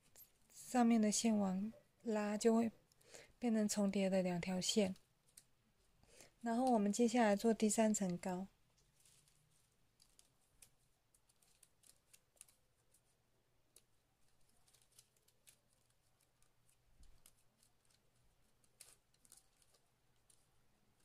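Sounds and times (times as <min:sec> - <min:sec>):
plastic strips clicking and rustling: 0:04.8 - 0:05.6, 0:06.2 - 0:21.0.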